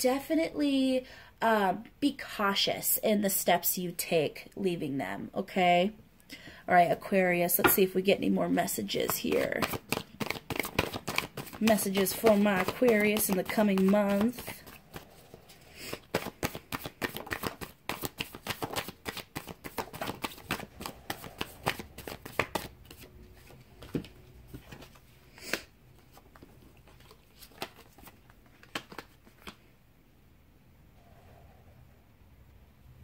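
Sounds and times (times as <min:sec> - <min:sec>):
cards being shuffled: 0:09.0 - 0:29.7.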